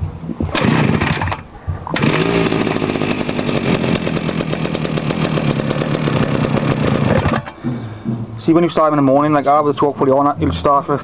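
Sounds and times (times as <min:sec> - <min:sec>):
recoil starter pull: 0:00.5 - 0:07.6
strimmer engine running: 0:00.5 - 0:07.6.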